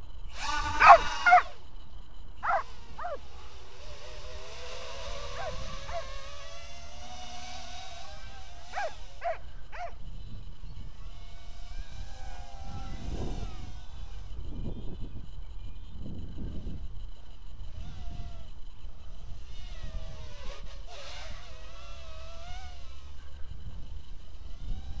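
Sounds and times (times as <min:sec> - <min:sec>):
drone motors whining: 0:00.0 - 0:15.9
dog barking: 0:00.8 - 0:01.5, 0:02.4 - 0:03.2, 0:05.4 - 0:06.1, 0:08.8 - 0:10.0.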